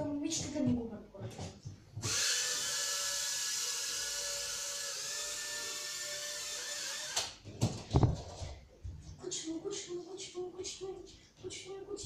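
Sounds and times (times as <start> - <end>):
toy drone propellers whirring: 2.0 - 7.3.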